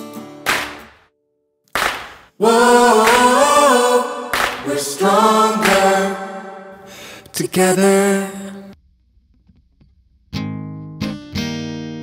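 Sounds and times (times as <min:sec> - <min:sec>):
song with singing voices: 0:01.8 - 0:08.8.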